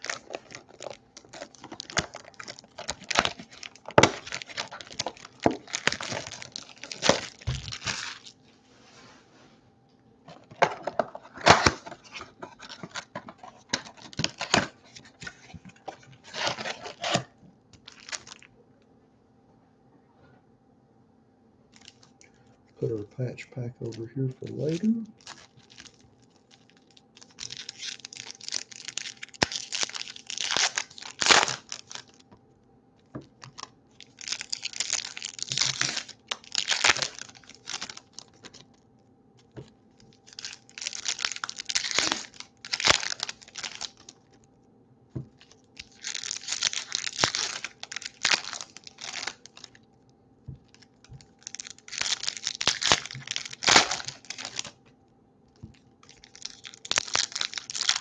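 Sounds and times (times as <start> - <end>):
foil ripping: 0.0 - 8.4, 10.3 - 18.5, 24.4 - 32.2, 33.4 - 38.7, 40.2 - 44.2, 45.4 - 49.8, 50.6 - 54.8, 56.0 - 58.0
foil wrappers crinkling: 0.0 - 8.5, 10.3 - 18.5, 21.7 - 22.5, 23.8 - 32.4, 33.0 - 38.8, 39.4 - 44.5, 45.2 - 49.9, 50.5 - 54.8, 55.6 - 58.0.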